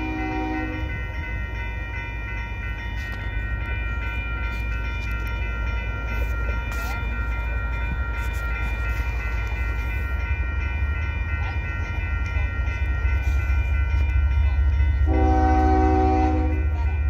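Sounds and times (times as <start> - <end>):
locomotive horn blast: 0.0 - 1.0, 15.0 - 16.8
freight train rumble: 0.0 - 17.0
steady high ringing: 0.0 - 17.0.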